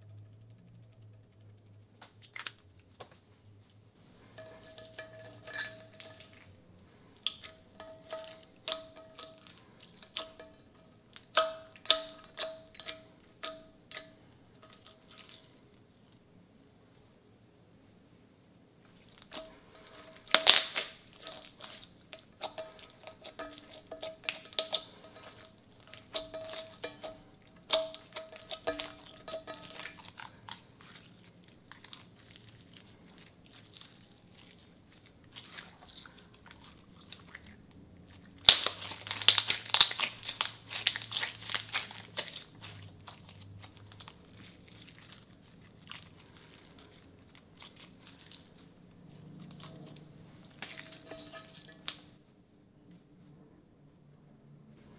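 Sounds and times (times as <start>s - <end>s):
slime clicking and crackling: 0.0s - 2.9s, 19.0s - 52.1s.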